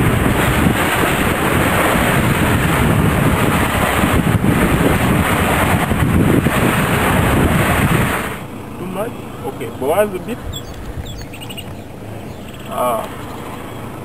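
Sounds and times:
boat engines running: 0.0s - 14.0s
water rushing in wake: 0.0s - 14.0s
wind buffeting microphone: 0.0s - 14.0s.

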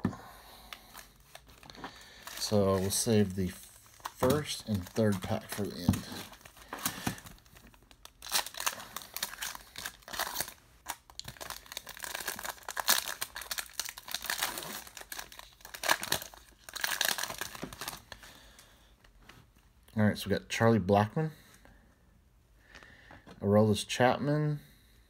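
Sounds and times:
plastic wrapper crinkling and tearing: 0.7s - 18.3s.

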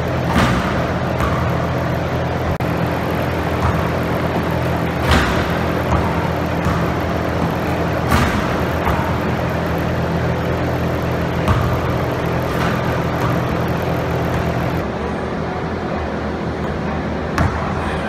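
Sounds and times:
basketball slamming the rim: 0.0s - 2.0s, 2.6s - 14.8s
steady low hum: 0.0s - 18.0s.

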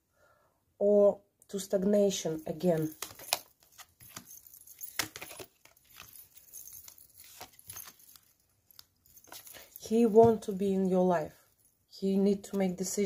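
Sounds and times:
cards tapping and sliding: 2.7s - 6.2s.

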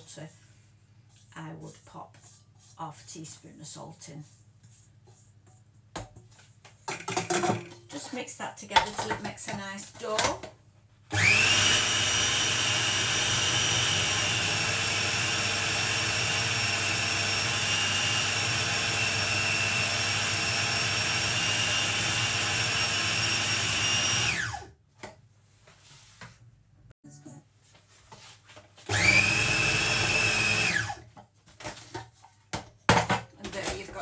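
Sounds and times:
food processor motor whining: 11.1s - 24.7s, 28.9s - 31.0s.

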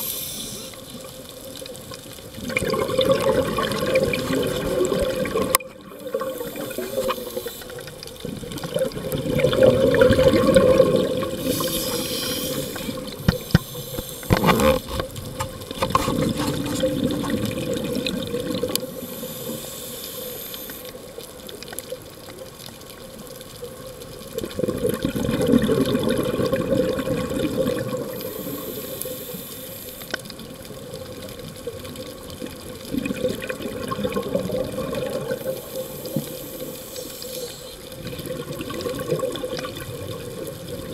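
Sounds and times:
water rushing: 0.0s - 21.0s
underwater regulator bubbling: 2.4s - 20.9s.

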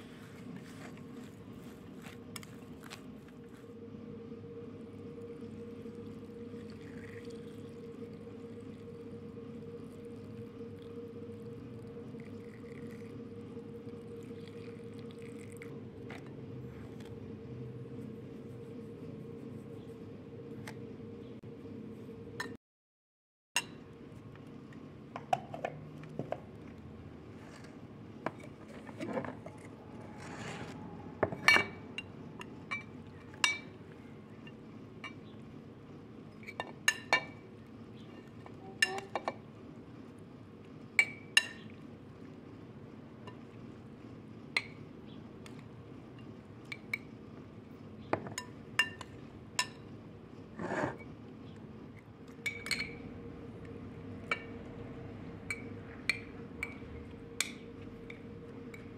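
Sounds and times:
spoon scraping: 50.5s - 51.1s.

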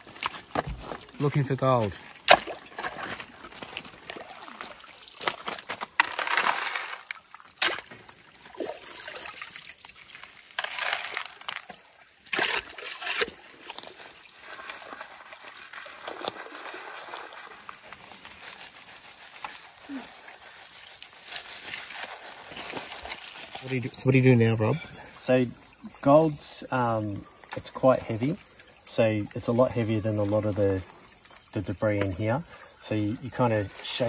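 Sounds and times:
shovel digging gravel: 5.4s - 8.0s, 10.5s - 11.6s.

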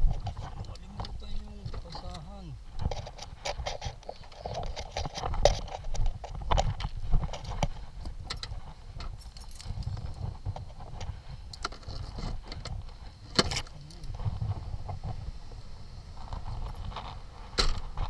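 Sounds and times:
clicks and knocks of handling: 0.1s - 14.1s.

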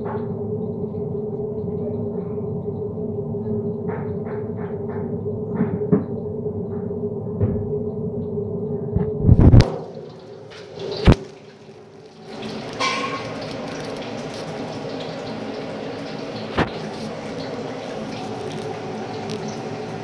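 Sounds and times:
potatoes sizzling in hot oil: 9.9s - 20.0s.

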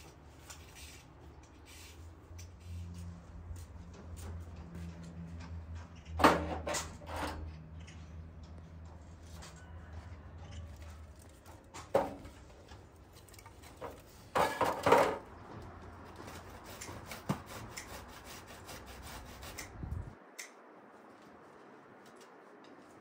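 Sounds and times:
firewood sticks knocking and scraping: 11.2s - 17.8s.

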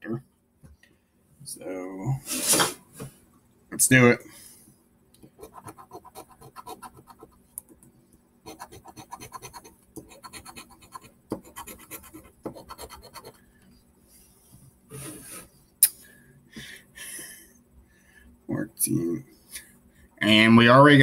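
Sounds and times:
scratching lottery ticket: 5.4s - 7.5s, 8.5s - 13.4s.

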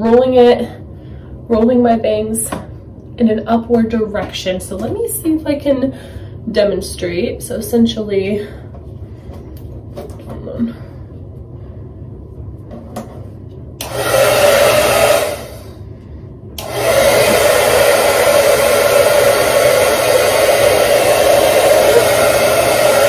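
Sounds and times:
hair dryer blowing: 13.8s - 15.8s, 16.6s - 23.0s.

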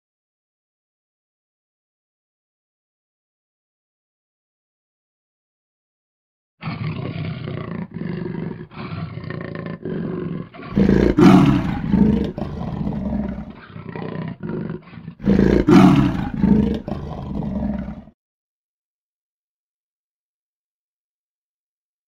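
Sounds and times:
big cat roaring: 6.6s - 18.2s.

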